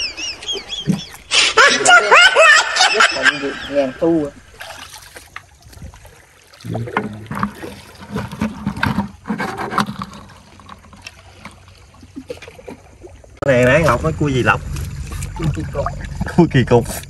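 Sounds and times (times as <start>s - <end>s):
seawater sloshing around rocks: 4.0s - 17.0s.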